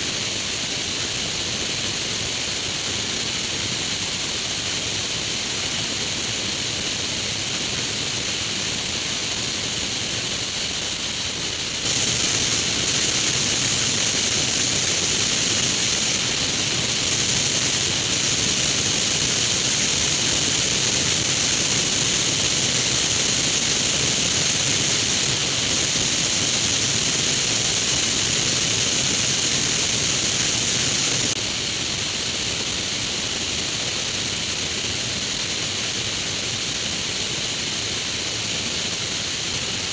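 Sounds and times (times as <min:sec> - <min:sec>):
rush of air: 0:03.3 - 0:35.8.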